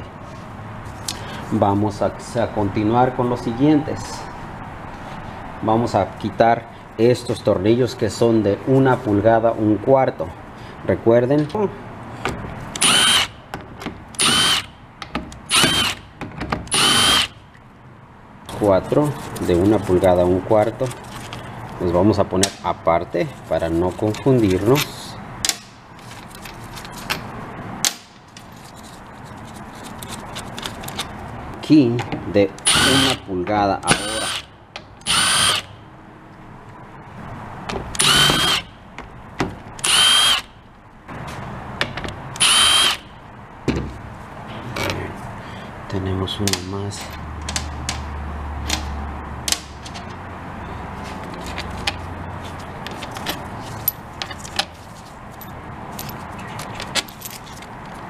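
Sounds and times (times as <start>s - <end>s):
small metal bolts clinking: 55.3s - 57.6s.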